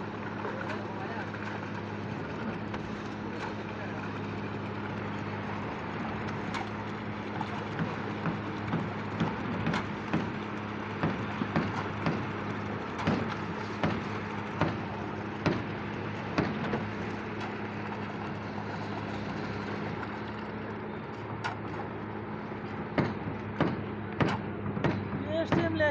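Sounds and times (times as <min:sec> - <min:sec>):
concrete pump engine running: 0:00.0 - 0:25.9
sharp knocks: 0:15.4 - 0:15.7, 0:23.0 - 0:25.1.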